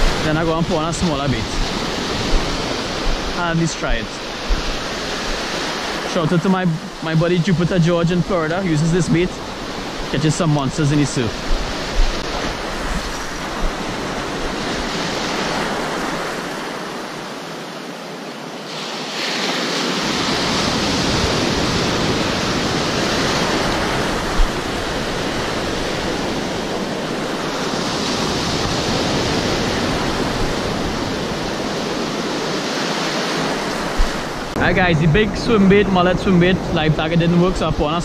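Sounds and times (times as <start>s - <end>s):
surf breaking: 0.0s - 17.1s.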